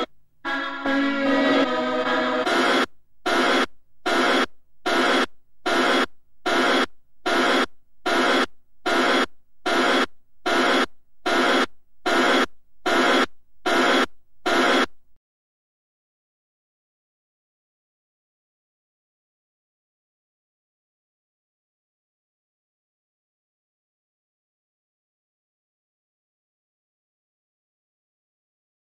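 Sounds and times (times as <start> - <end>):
choir singing: 0.5 - 2.6.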